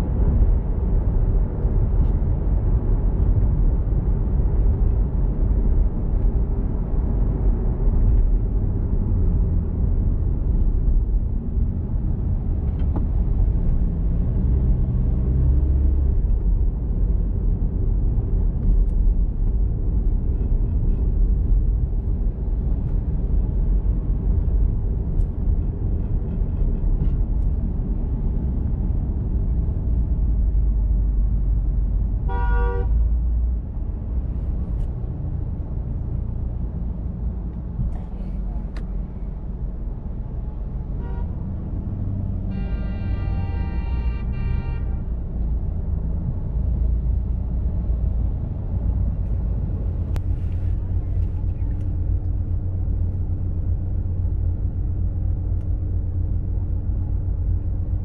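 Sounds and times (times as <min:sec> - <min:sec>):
car driving in traffic: 0:00.0 - 0:58.0
car horn toot: 0:32.3 - 0:32.9, 0:42.5 - 0:45.1.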